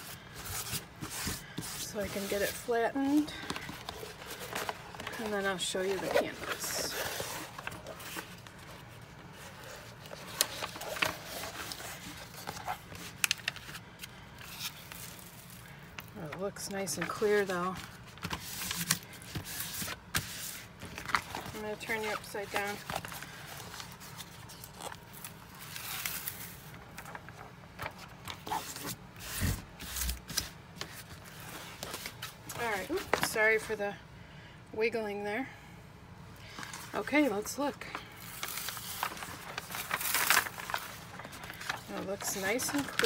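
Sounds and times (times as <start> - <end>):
rustling plastic sheet: 0.0 - 16.4, 37.9 - 43.0
plastic film crinkling: 0.0 - 33.7, 36.6 - 43.0.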